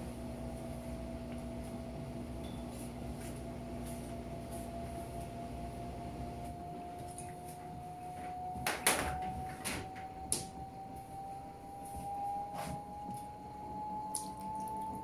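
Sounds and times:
washing machine motor whine: 0.0s - 15.0s.

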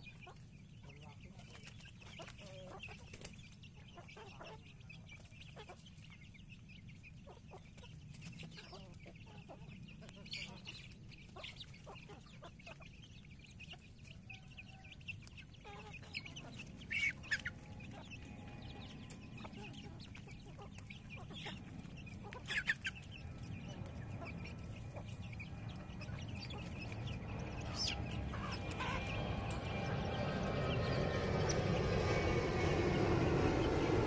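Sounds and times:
chickens clucking: 0.0s - 31.6s
low rumble: 16.6s - 34.0s.

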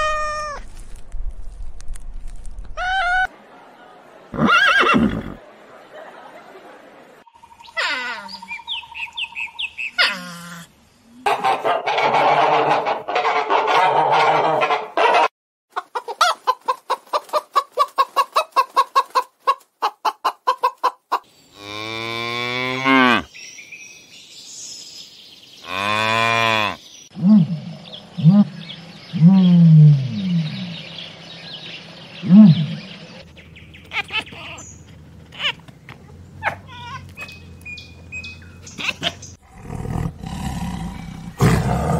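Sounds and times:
noisy animal sound: 7.6s - 15.3s
hens clucking: 11.3s - 21.3s, 33.2s - 39.4s
squeaky animal calls: 33.9s - 35.6s, 36.4s - 39.4s.

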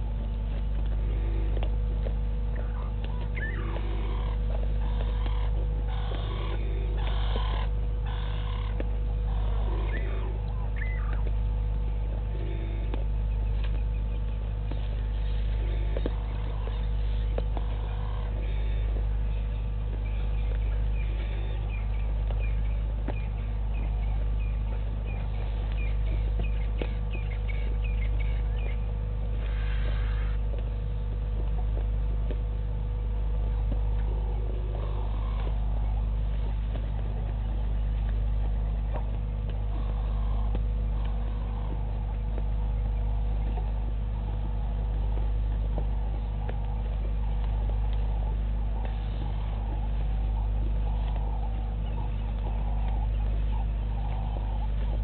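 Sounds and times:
low electrical hum: 0.0s - 55.0s
faint bird chirps: 2.5s - 11.4s, 12.2s - 30.4s.

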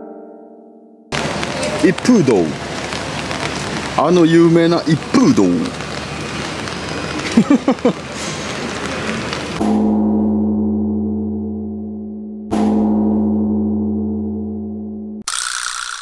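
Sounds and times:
low gong tone ringing: 0.0s - 1.1s, 9.6s - 15.2s
background hiss: 1.2s - 9.6s.

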